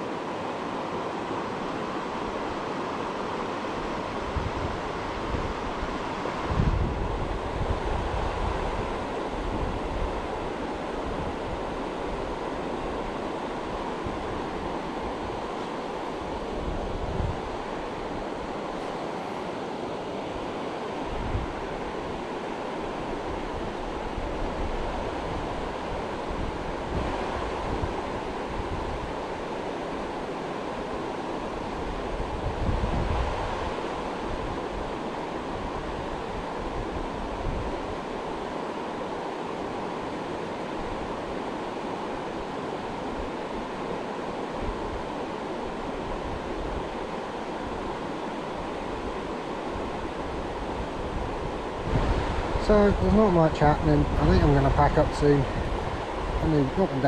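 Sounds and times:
river water rushing: 0:00.0 - 0:57.0
wind buffeting microphone: 0:03.9 - 0:15.6, 0:16.2 - 0:18.7, 0:21.1 - 0:29.6, 0:31.4 - 0:38.4, 0:48.8 - 0:57.0.

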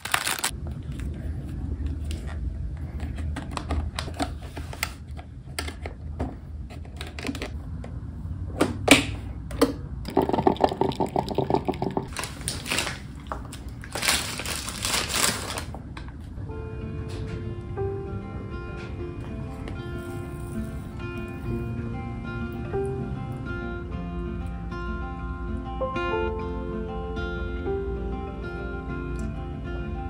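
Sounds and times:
paper rustling: 0:00.0 - 0:05.1, 0:12.1 - 0:15.8.

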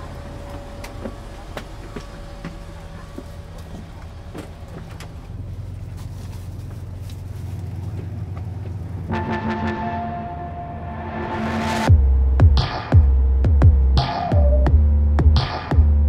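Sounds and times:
bus engine idling: 0:00.0 - 0:12.4.

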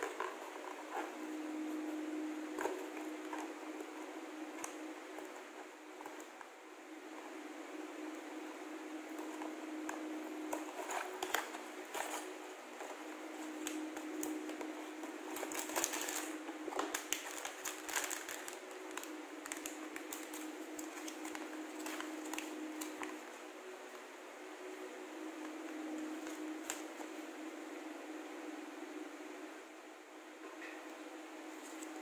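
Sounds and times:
plastic bag crinkling: 0:09.1 - 0:23.3
paper sheet rustling: 0:10.3 - 0:23.4.

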